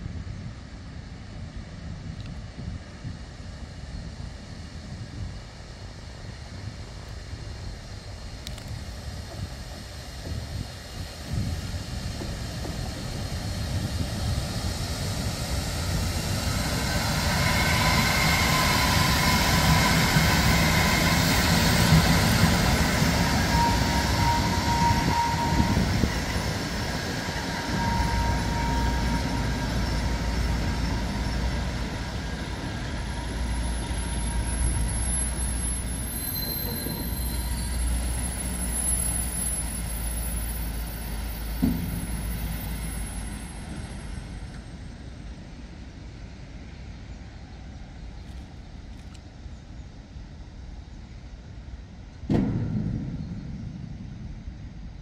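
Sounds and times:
freight train rumbling past: 0.0s - 48.2s, 49.6s - 55.0s
thin high squeal: 23.2s - 44.5s.

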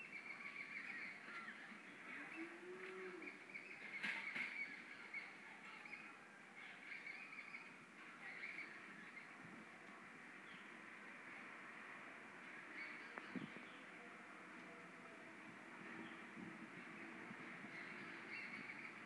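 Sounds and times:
birds chirping and calling: 0.0s - 9.5s, 12.4s - 13.9s, 16.0s - 19.0s.

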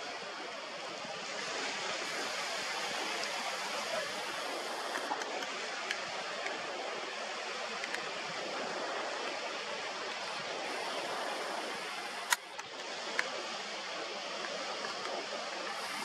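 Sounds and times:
sea water rushing: 0.0s - 16.0s.

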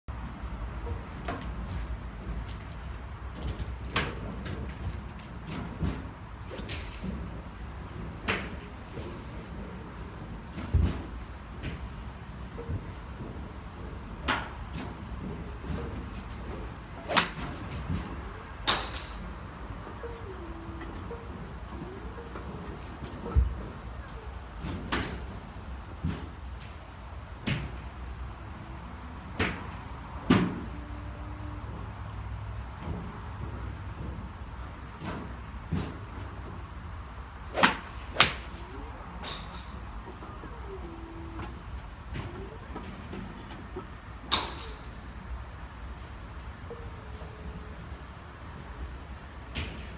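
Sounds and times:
golf balls struck by clubs: 17.0s - 19.4s, 29.3s - 30.6s, 37.4s - 40.5s
golf club striking ball: 17.1s - 17.8s, 37.5s - 38.5s.

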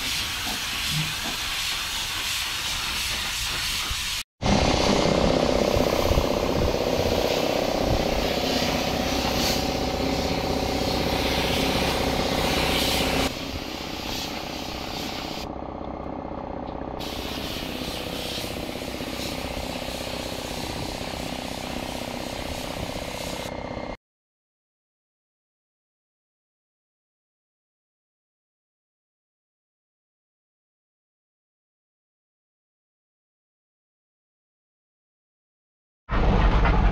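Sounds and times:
spray gun hissing: 0.0s - 4.2s, 5.5s - 15.5s, 17.0s - 23.5s
steady machine hum: 4.4s - 24.0s.

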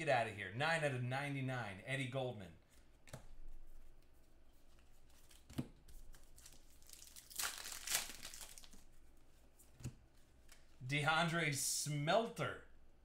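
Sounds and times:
wrapper crinkling and tearing: 6.2s - 8.9s.

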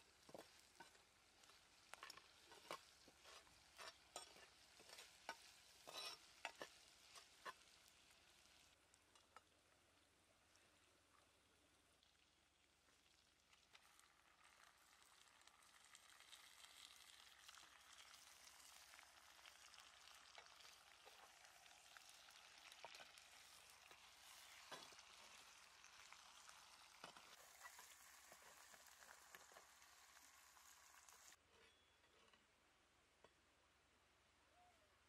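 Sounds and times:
food sizzling in hot oil: 0.0s - 9.9s, 11.9s - 31.4s
oil crackles and pops: 0.0s - 31.4s.

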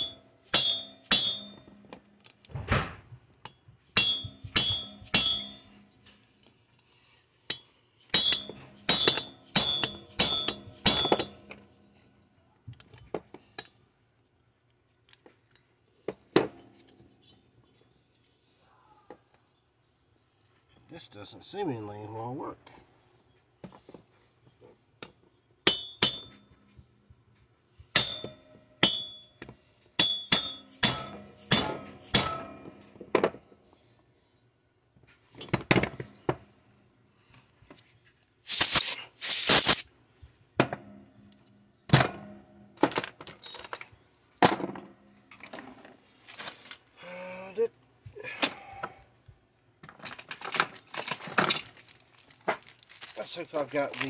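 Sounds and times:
tools clinking on metal: 0.0s - 2.4s, 3.4s - 6.2s, 7.5s - 11.7s, 25.0s - 26.8s, 27.9s - 32.9s.

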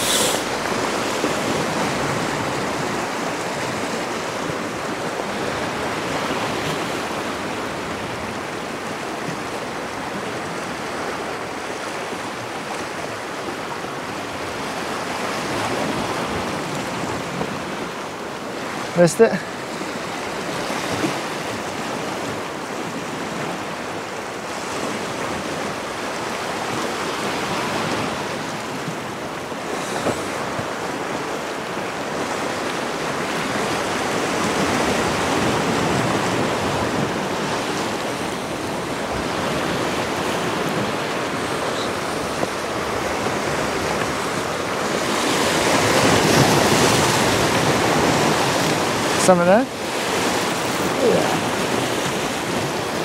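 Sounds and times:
sea waves washing on rocks: 0.0s - 53.0s
wind on microphone: 20.0s - 53.0s.

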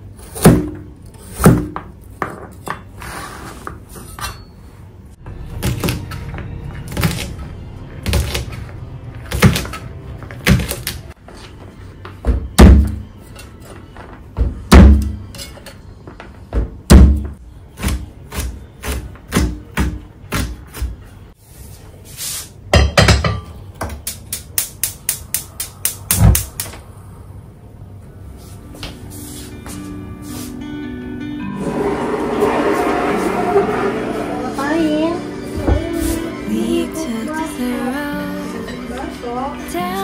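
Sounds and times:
knife chopping on cutting board: 0.3s - 1.8s.

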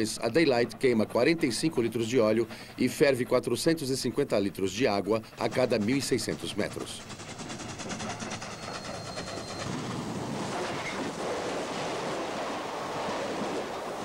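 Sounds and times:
train passing rush: 0.0s - 14.0s
steam locomotive rhythmic beat: 0.6s - 10.0s.

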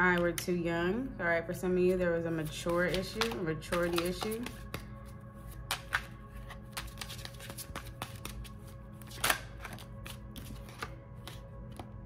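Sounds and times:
cards clicking and snapping: 2.6s - 4.9s, 5.6s - 11.9s.

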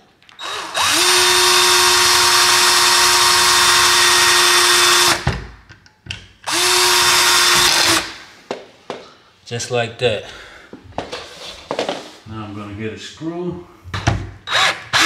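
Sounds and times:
cordless drill running: 0.4s - 5.2s, 6.5s - 8.2s, 14.5s - 15.0s.

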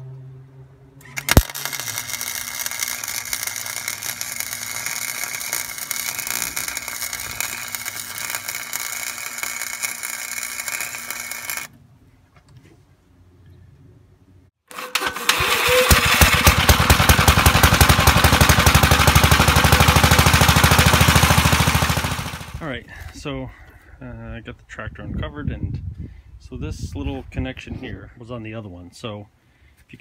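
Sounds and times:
welding arc crackling hiss: 1.2s - 11.7s.

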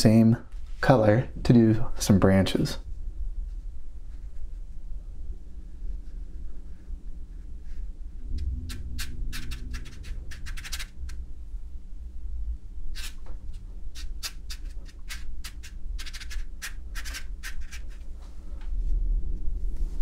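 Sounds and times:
steady low hum: 0.0s - 20.0s
brush scratching on paper: 3.4s - 4.9s, 5.6s - 11.0s, 13.0s - 18.1s.

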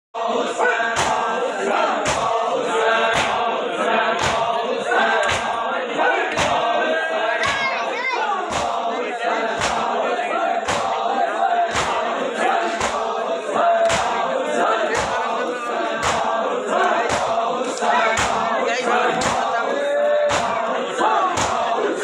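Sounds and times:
men chanting together: 0.2s - 22.0s
chest-beating thumps: 11.7s - 12.1s.

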